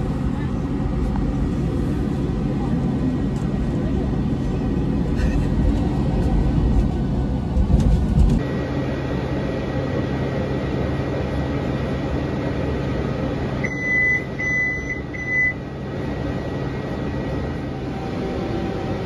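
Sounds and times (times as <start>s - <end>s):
tram running hum: 0.0s - 19.0s
short electronic beeps: 13.6s - 15.6s.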